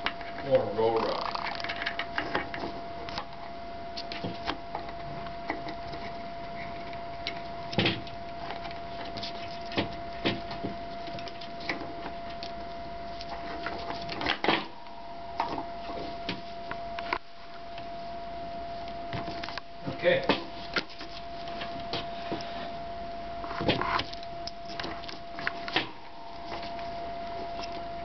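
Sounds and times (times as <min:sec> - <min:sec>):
steady thin whine: 0:00.0 - 0:28.0
plastic toys clicking and knocking: 0:01.1 - 0:02.6.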